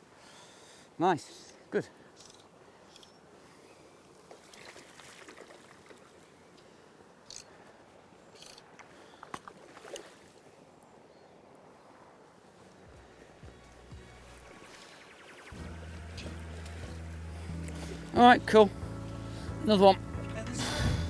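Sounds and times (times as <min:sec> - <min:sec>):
fish splashing: 0:04.3 - 0:06.2.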